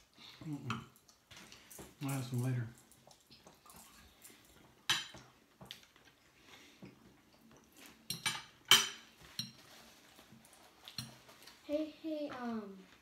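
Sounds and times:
forks clinking against plates: 4.9 - 5.2, 8.0 - 9.6.

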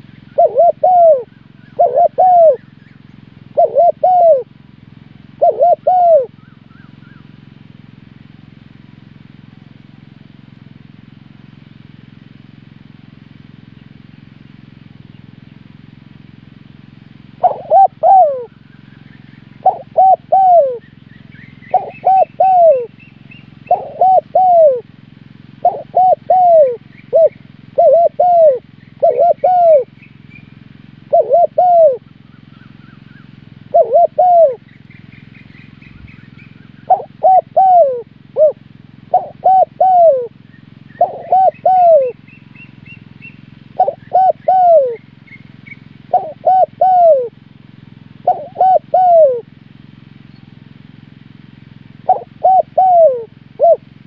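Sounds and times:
small bird chirping: 0.0 - 4.4, 17.4 - 24.8, 25.6 - 47.3
dove cooing: 0.0 - 4.6, 5.3 - 7.4, 17.4 - 30.0, 30.9 - 34.7, 35.6 - 47.4, 48.2 - 49.5, 52.0 - 54.0.

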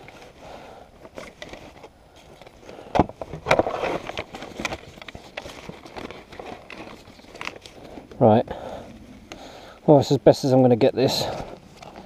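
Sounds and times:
clicks and rustles of handling: 1.0 - 8.2, 11.1 - 12.0.

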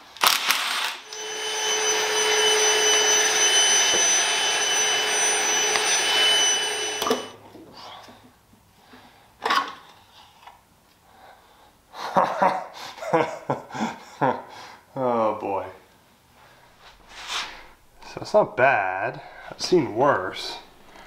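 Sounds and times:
shop vacuum running: 0.7 - 7.4.

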